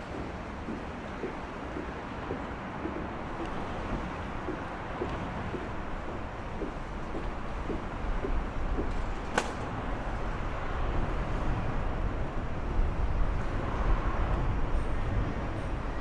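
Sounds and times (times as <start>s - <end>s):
distant city traffic rumble: 0.0s - 16.0s.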